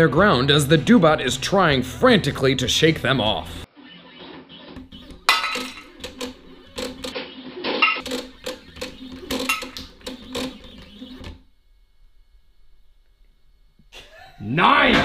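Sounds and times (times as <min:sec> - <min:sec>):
stepper motors whirring: 0:03.8 - 0:11.5.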